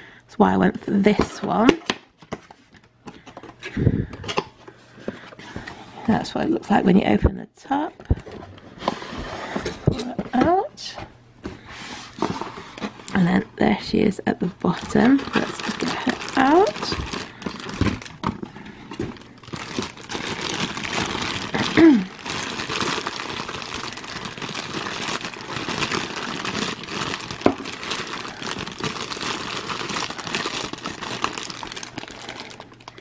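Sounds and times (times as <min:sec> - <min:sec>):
plastic bag crinkling: 0:14.6 - 0:33.0.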